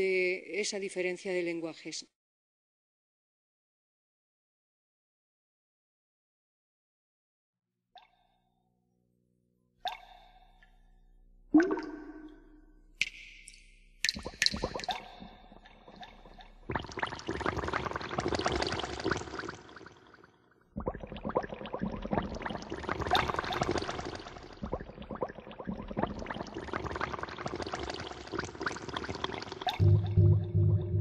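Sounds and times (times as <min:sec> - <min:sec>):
crackling liquid sound design: 0:13.2 - 0:31.0.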